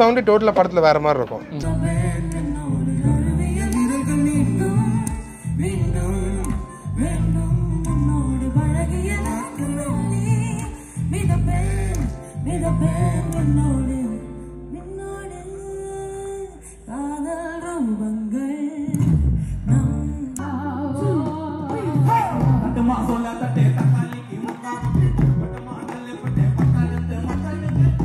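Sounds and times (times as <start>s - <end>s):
keyboard: 0.0s - 28.0s
electric bass guitar: 1.5s - 16.3s, 18.9s - 24.1s, 24.8s - 28.0s
woman singing: 1.5s - 28.0s
drums: 21.0s - 28.0s.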